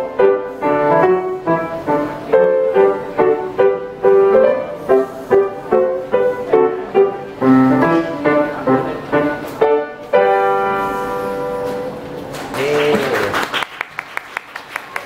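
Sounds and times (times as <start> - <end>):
piano chord ringing: 0.0 - 12.2
hand clapping: 12.3 - 15.0.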